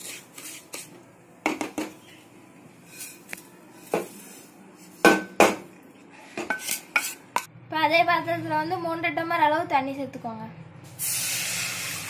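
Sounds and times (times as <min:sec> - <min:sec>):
spatula scraping semolina in a pan: 0:00.0 - 0:01.0, 0:02.8 - 0:05.0, 0:06.2 - 0:07.3.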